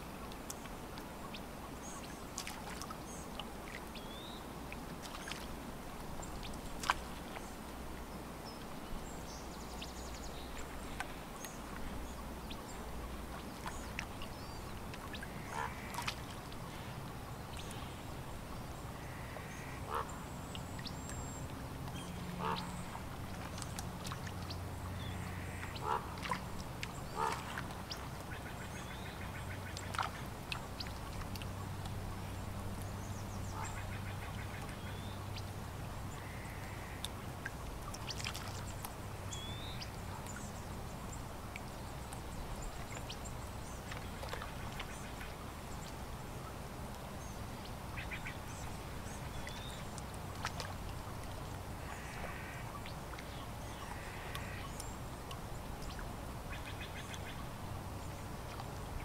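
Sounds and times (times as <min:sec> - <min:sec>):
lake water lapping: 0:00.0 - 0:59.0
waterfowl calling: 0:15.3 - 0:16.2, 0:19.0 - 0:20.2, 0:22.4 - 0:23.0, 0:25.2 - 0:26.4, 0:27.1 - 0:27.6, 0:33.5 - 0:35.1, 0:36.2 - 0:37.1, 0:51.8 - 0:52.8, 0:53.8 - 0:54.8.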